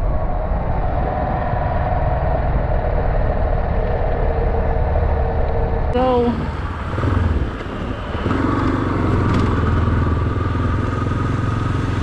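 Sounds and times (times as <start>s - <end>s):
motorcycle engine running: 4.6s - 12.0s.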